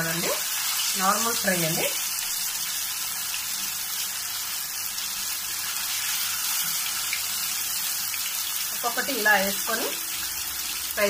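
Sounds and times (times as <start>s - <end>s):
fish deep-frying in oil: 0.0s - 11.0s.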